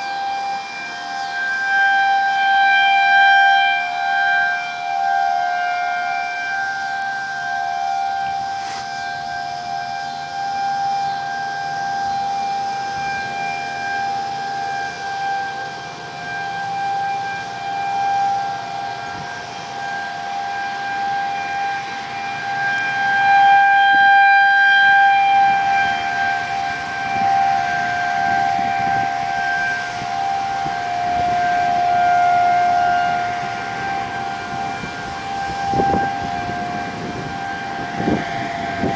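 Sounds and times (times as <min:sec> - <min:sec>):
tornado warning sirens wailing: 0:00.0 - 0:38.9.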